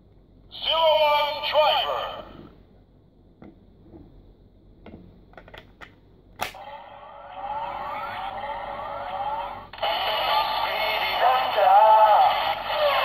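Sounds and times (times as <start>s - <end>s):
toy speaker music: 7.4s - 13.0s.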